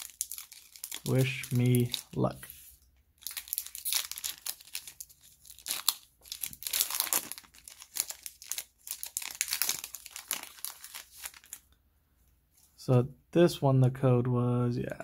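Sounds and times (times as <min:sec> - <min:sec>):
foil wrapper crinkling and tearing: 0:00.0 - 0:02.2, 0:03.2 - 0:11.7.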